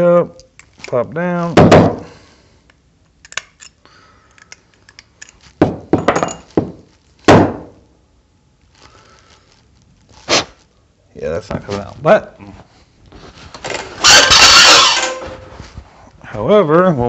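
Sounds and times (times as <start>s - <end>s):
metallic knocks and clinks: 4.9s - 6.6s.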